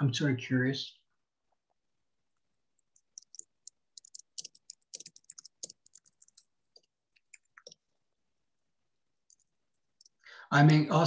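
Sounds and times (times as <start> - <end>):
computer keyboard typing: 2.8 - 7.9, 9.2 - 10.2.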